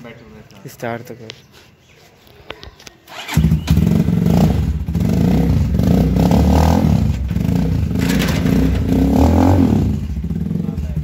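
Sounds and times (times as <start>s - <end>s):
motorcycle engine revving: 3.1s - 11.0s.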